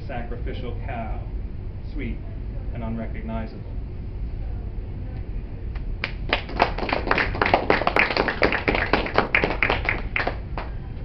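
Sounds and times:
small audience clapping: 5.8 - 10.8.

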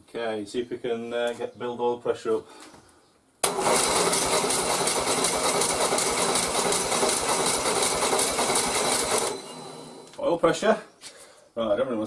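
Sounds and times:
starter motor cranking engine: 3.4 - 10.2.

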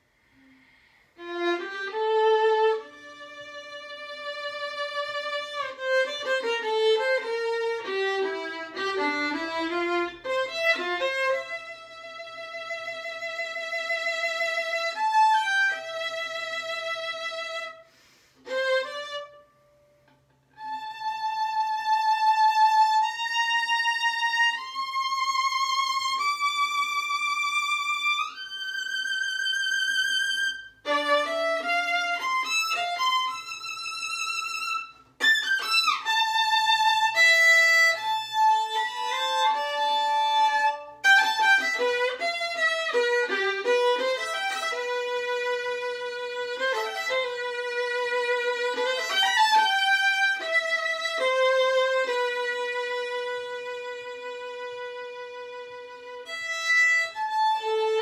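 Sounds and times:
solo violin: 0.0 - 58.0.

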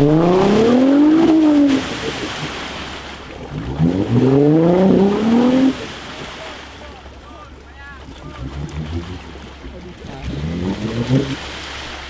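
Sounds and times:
engine revving: 0.0 - 2.2, 3.4 - 6.6, 8.0 - 12.0.

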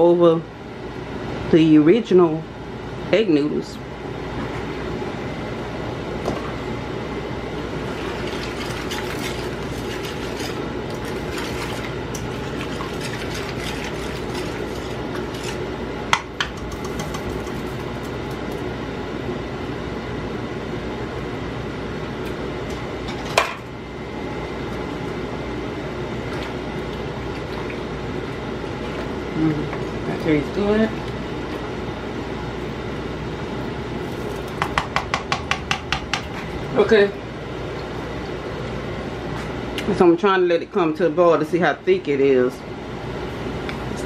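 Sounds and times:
steady background hum: 0.0 - 44.0
utensil scraping a pot: 7.9 - 15.7.

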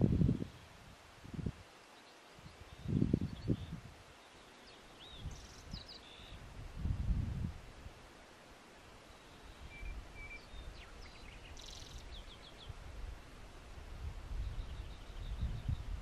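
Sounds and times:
small birds chirping: 1.8 - 6.5, 9.0 - 12.8, 14.3 - 16.0.

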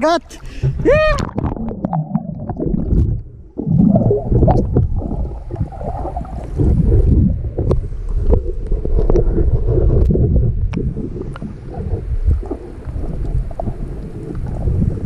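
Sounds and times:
underwater rumble and gurgling: 0.4 - 15.0.

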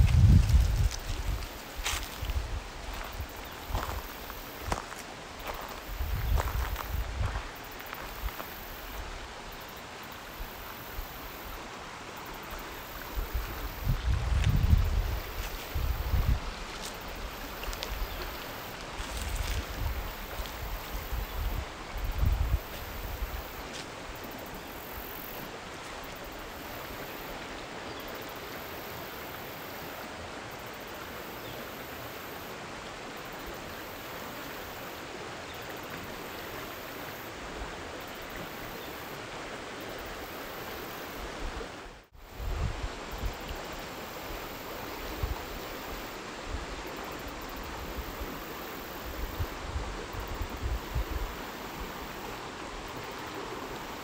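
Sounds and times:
flowing water rushing: 0.0 - 54.0.

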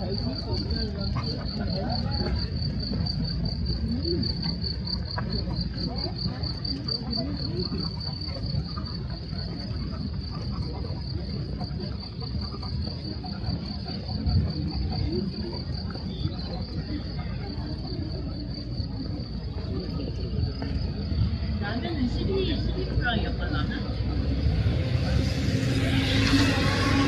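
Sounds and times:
low outdoor rumble: 20.5 - 27.0.

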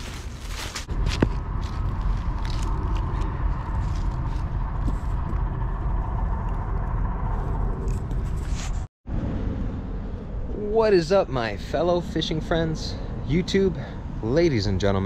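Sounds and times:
footsteps crunching dry leaves: 0.0 - 4.4
steady low rumble with hum: 0.0 - 15.0.

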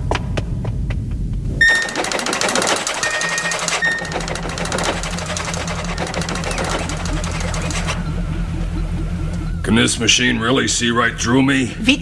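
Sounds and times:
low machine hum: 0.0 - 12.0
short electronic beeps: 1.6 - 2.2, 2.8 - 4.2
scattered clicks: 1.6 - 8.1
rapid mechanical chatter: 1.6 - 11.3.

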